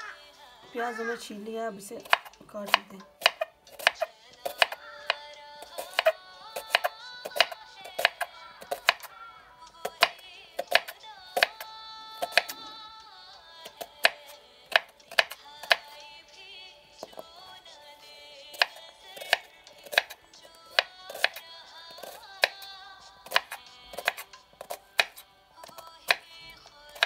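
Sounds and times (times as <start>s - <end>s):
background music: 0.0s - 27.0s
knife chopping on wooden board: 2.0s - 9.1s, 9.8s - 11.6s, 12.2s - 12.6s, 13.6s - 15.9s, 18.5s - 26.3s.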